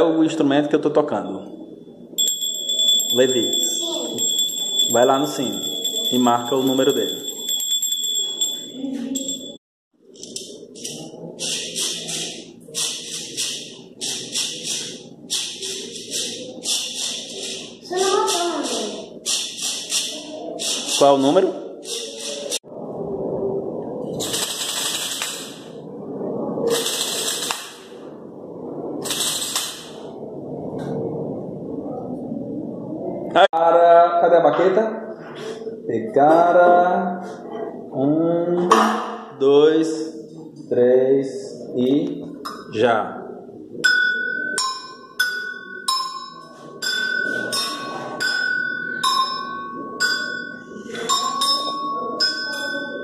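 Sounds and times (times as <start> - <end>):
percussion shaker rattling: 10.8 - 21.0, 24.1 - 25.7, 26.7 - 27.9, 29.0 - 30.1
two-tone metal bell struck: 43.9 - 53.0.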